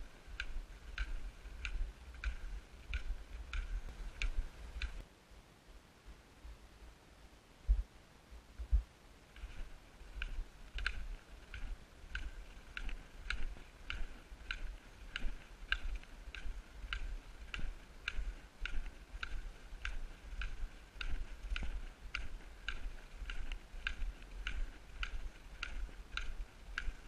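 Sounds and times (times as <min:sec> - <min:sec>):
footsteps on packed snow: 0:09.3 - 0:27.0.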